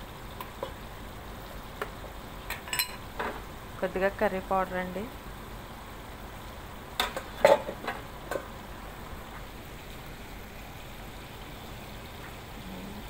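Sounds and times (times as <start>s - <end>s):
low steady hiss: 0.0s - 13.0s
cooking utensils clacking: 2.5s - 3.4s, 7.0s - 8.5s.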